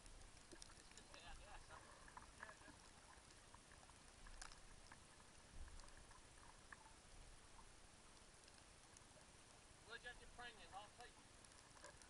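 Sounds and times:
light ticks: 0.0 - 1.3, 8.1 - 9.6, 11.0 - 12.0
faint steady hiss: 0.0 - 12.0.

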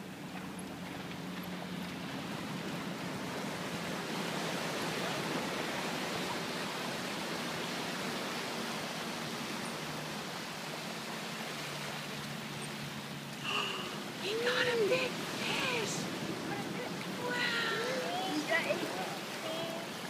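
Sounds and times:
ocean surf hissing on beach: 13.3 - 20.0.

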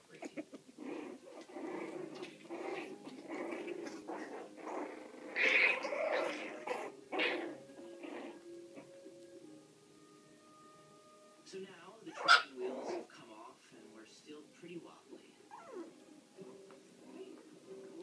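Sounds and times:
puppies growling and yipping: 0.2 - 9.3, 12.1 - 13.1, 15.5 - 16.0, 17.0 - 18.0.

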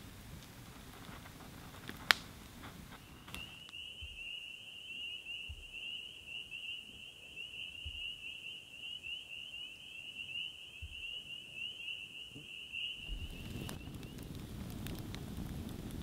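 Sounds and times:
crickets trilling: 2.9 - 15.7.

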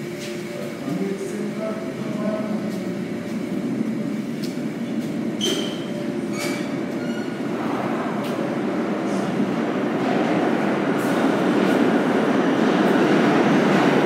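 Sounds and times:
subway train rumbling on tracks: 0.0 - 14.0
wheel squeals: 5.4 - 7.4.

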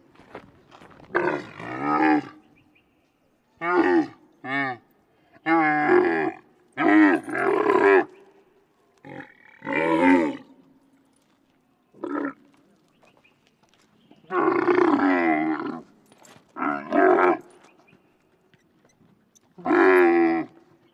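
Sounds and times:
camel grunting: 1.1 - 2.5, 3.6 - 8.2, 9.0 - 10.6, 11.9 - 12.6, 14.2 - 16.0, 16.6 - 17.6, 19.5 - 20.8.

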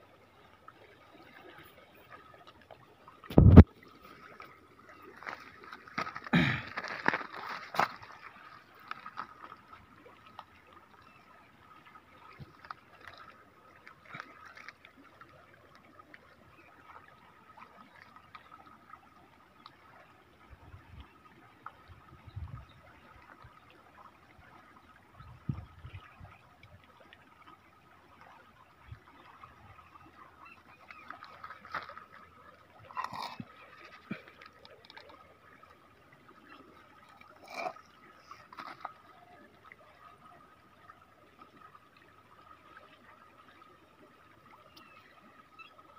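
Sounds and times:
faint river water: 0.0 - 45.9.

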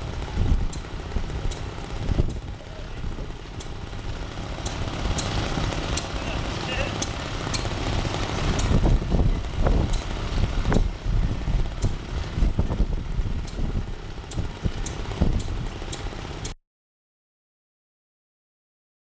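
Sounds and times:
stationary engine chugging: 0.0 - 16.6
sharp clicks: 0.6 - 2.5, 3.4 - 4.0, 4.6 - 6.2, 13.4 - 16.6.

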